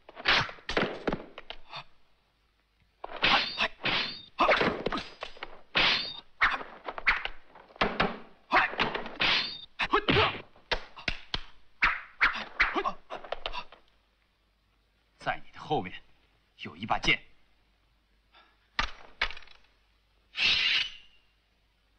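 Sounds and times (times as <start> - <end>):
thwacking hits: 3.0 - 13.7.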